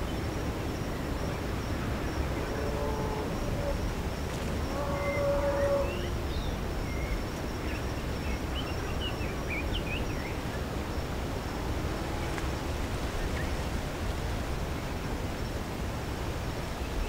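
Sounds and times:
high insect drone: 0:00.0 - 0:17.0
low rush of wind: 0:00.0 - 0:17.0
pitched animal call: 0:04.6 - 0:06.2.

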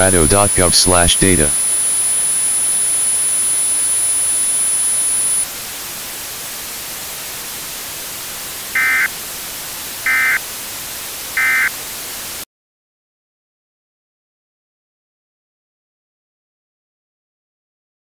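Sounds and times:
harsh data bursts: 0:00.0 - 0:05.5, 0:08.8 - 0:09.1
thin high whine: 0:00.0 - 0:05.5
radio static hiss: 0:00.0 - 0:12.4.

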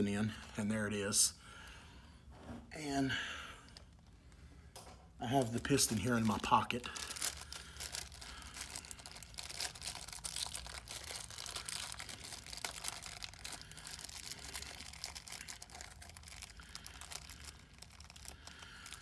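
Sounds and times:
low steady hum: 0:00.0 - 0:19.0
plastic bag crinkling: 0:05.5 - 0:19.0.

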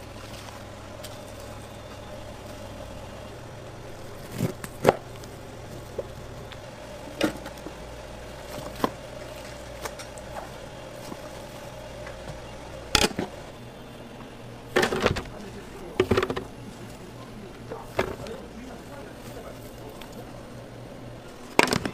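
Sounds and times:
steady hum: 0:00.0 - 0:21.9.

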